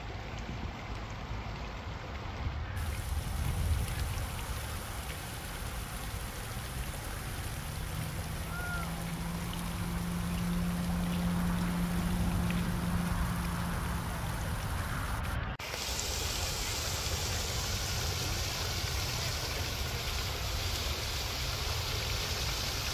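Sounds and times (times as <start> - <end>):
water splashing into pond: 0.0 - 22.9
low steady hum: 0.1 - 15.6.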